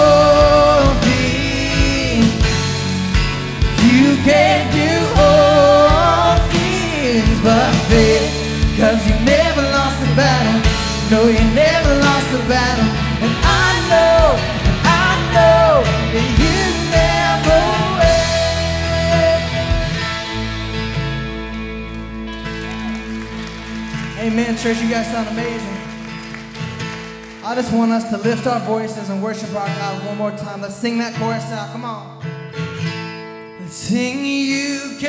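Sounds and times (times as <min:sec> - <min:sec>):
lead vocals: 0:00.0 - 0:21.3, 0:24.1 - 0:26.1, 0:33.6 - 0:35.0
drums: 0:00.0 - 0:21.5
electric guitars: 0:00.0 - 0:29.8
bass: 0:00.0 - 0:35.0
keyboard: 0:00.0 - 0:35.0.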